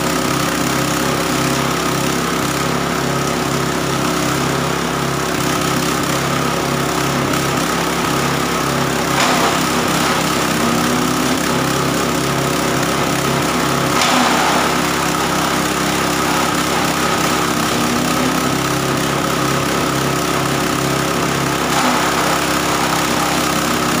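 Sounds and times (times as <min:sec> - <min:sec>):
petrol engine running: 0:00.0 - 0:24.0
grass being chopped: 0:07.0 - 0:24.0.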